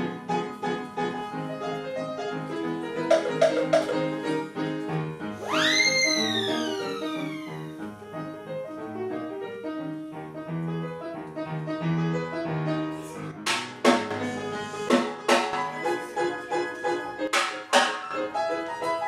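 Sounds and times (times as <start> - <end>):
lively piano playing: 0.0 - 19.0
sharp percussion hits: 3.1 - 4.2.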